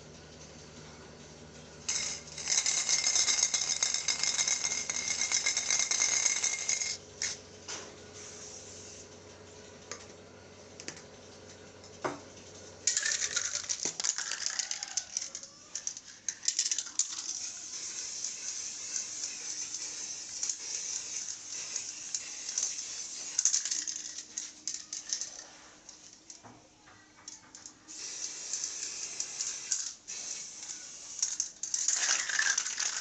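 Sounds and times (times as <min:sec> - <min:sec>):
spray-paint can hissing: 0:01.9 - 0:07.4, 0:08.2 - 0:09.1, 0:12.9 - 0:25.6, 0:27.9 - 0:33.0.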